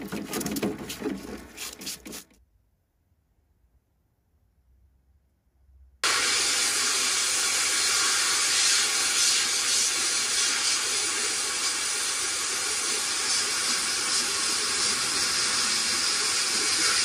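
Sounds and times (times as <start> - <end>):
sandblasting gun hissing: 6.0 - 17.0.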